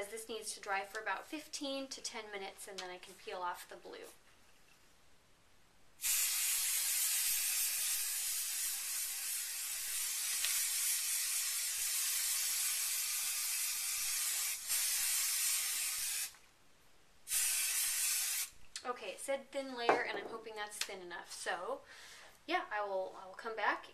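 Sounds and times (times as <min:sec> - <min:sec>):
aerosol can hissing: 0:06.0 - 0:16.4, 0:17.3 - 0:18.6.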